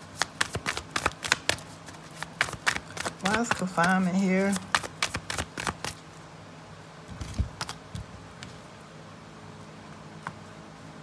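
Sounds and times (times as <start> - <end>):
faint room hum: 0.0 - 11.0
cards shuffling clicks: 0.1 - 6.0, 7.2 - 7.8.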